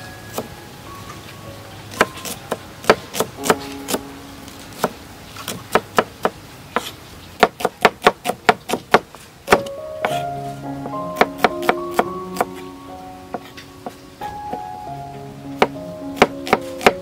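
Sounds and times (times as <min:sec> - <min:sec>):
background music: 0:00.0 - 0:06.7, 0:09.5 - 0:17.0
knife chopping on wooden board: 0:02.0 - 0:04.0, 0:06.8 - 0:10.2.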